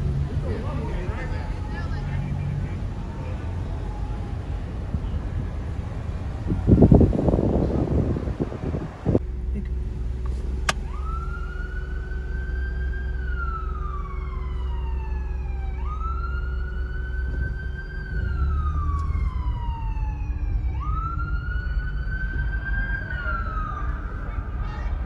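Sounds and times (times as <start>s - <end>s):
police siren wailing: 0.0s - 8.9s, 10.7s - 25.0s
car rumble: 0.0s - 25.0s.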